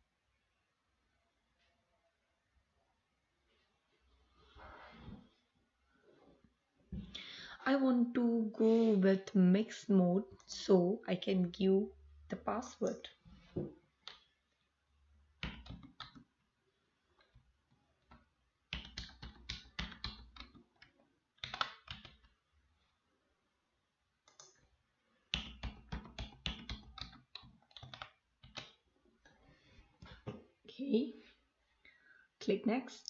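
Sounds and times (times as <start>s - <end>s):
typing on computer keyboard: 15.4s - 16.3s, 18.1s - 22.4s, 24.2s - 24.6s, 25.3s - 28.8s.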